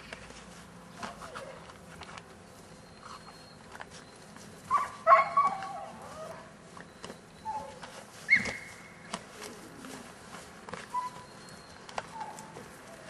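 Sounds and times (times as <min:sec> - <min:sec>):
puppy barking and yipping: 0:04.7 - 0:06.5, 0:12.0 - 0:13.0
puppy yelping: 0:04.7 - 0:06.5, 0:07.4 - 0:08.8, 0:10.8 - 0:13.0.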